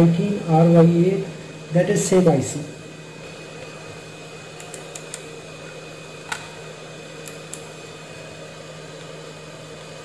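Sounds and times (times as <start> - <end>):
low electrical hum: 0.0 - 10.0
sharp click: 4.6 - 5.3, 7.2 - 7.7.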